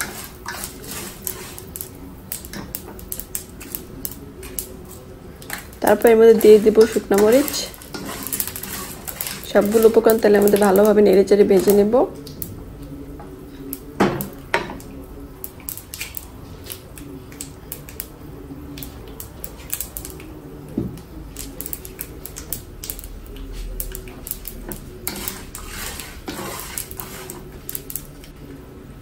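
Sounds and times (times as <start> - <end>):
spatula scraping a pan: 0.0 - 12.0, 23.5 - 28.1
food frying in oil: 0.0 - 28.4.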